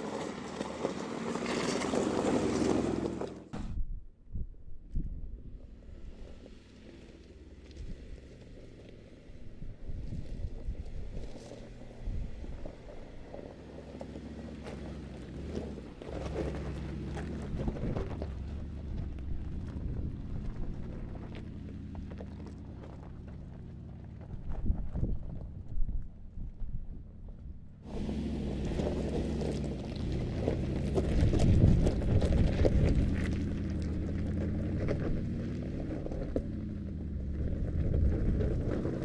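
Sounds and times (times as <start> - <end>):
engine running at low revs: 0.0 - 39.0
tyres crunching over stones: 10.8 - 25.4, 27.9 - 39.0.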